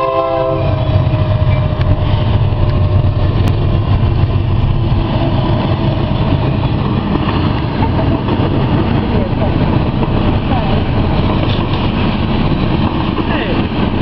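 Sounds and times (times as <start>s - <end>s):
train horn: 0.0s - 3.2s
freight train rumbling past: 0.0s - 14.0s.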